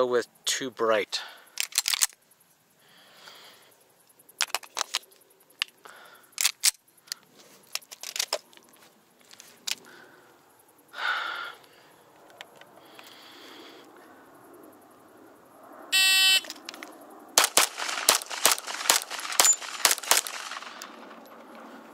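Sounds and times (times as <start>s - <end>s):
sharp mechanical clicks: 1.6s - 2.2s, 4.4s - 7.2s, 16.4s - 21.4s
rustling burst: 16.4s - 21.9s.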